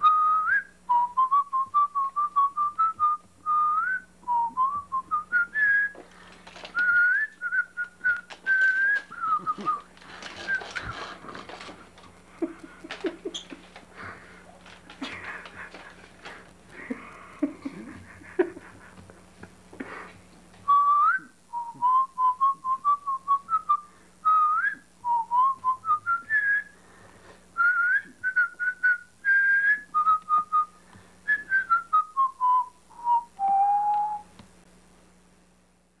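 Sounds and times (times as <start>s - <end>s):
person whistling a tune: 0.0s - 6.0s, 6.7s - 10.9s, 20.7s - 26.8s, 27.6s - 34.3s.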